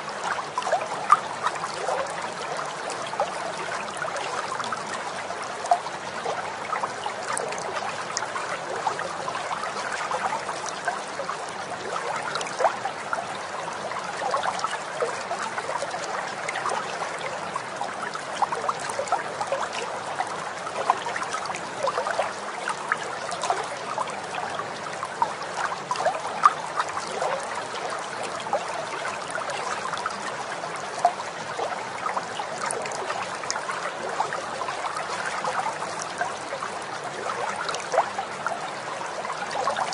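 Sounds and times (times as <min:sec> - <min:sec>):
tiny water splashes: 0:00.0 - 0:39.9
water trickling: 0:00.0 - 0:39.9.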